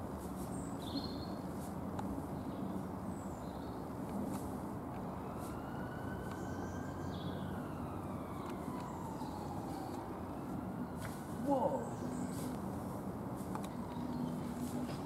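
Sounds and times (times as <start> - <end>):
distant siren: 4.9 - 12.6.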